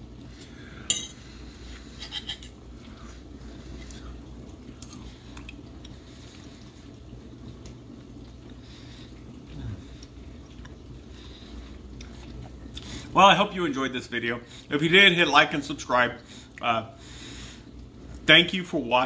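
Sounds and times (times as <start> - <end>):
low background hum: 0.0 - 19.0
cutlery clinking against plate: 2.0 - 2.6.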